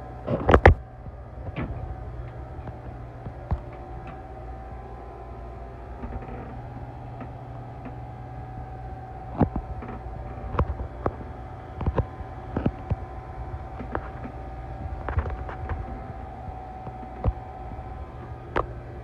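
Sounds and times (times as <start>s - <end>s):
low machinery hum: 0.0s - 19.0s
thin steady whine: 0.0s - 19.0s
sharp clicks and knocks: 9.3s - 17.7s.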